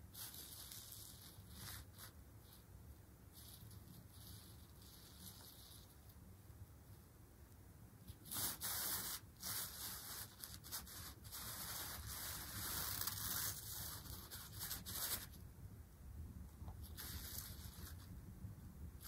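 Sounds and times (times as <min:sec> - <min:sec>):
fabric rustling and scraping: 0:03.3 - 0:06.2, 0:08.0 - 0:15.4, 0:16.6 - 0:18.2.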